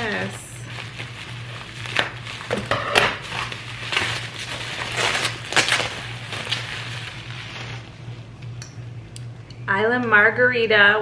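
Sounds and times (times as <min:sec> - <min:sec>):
packaging crinkling and rustling: 0:00.0 - 0:08.4.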